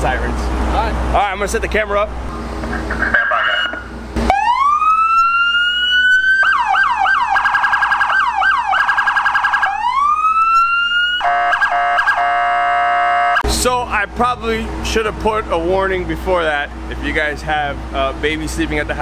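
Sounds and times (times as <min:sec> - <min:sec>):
police siren wailing: 0:02.8 - 0:13.4.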